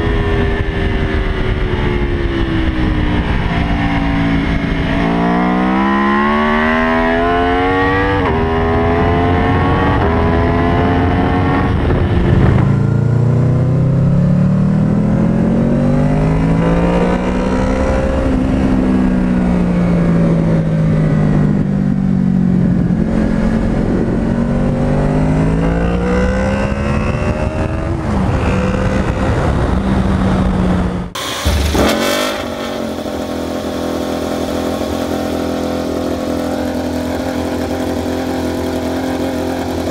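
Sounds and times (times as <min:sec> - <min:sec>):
motorcycle accelerating hard: 0:00.0 - 0:39.9
motorcycle engine revving: 0:00.0 - 0:39.9.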